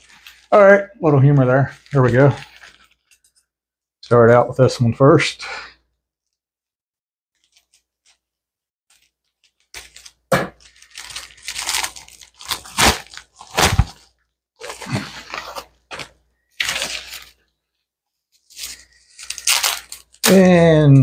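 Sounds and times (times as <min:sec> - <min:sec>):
plastic packaging crinkling: 0:00.0 - 0:00.6, 0:01.3 - 0:03.4, 0:07.4 - 0:08.2, 0:08.9 - 0:17.5, 0:18.4 - 0:20.4.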